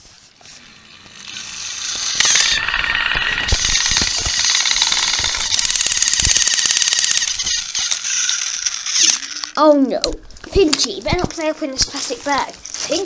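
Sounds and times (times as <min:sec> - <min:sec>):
toy train motor buzzing: 0:00.0 - 0:09.6.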